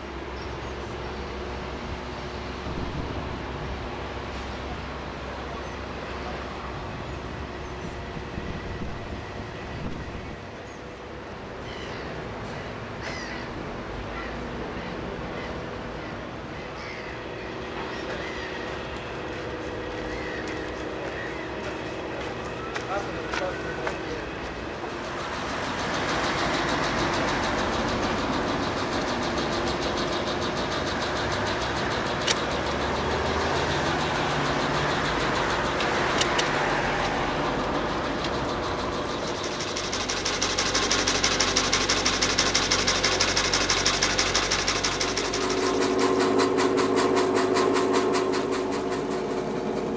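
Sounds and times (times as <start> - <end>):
low outdoor rumble: 0.0 - 49.9
harsh caw-like bird calls: 11.6 - 22.0
boat engine running: 17.1 - 49.9
fast even ticking: 38.5 - 49.9
faint hum: 44.0 - 49.9.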